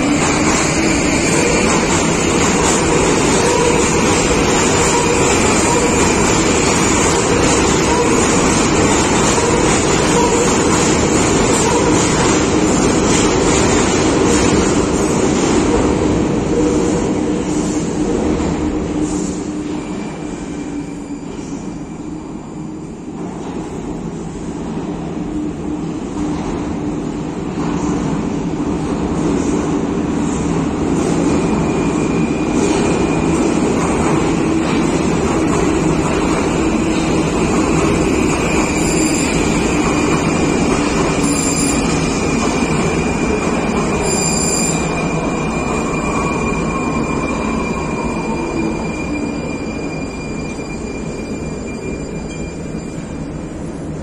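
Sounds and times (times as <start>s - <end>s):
metro train rumble: 0.0s - 54.0s
train wheel squeal: 0.2s - 13.7s, 19.0s - 23.6s, 31.0s - 54.0s
high wheel squeal: 36.4s - 53.7s.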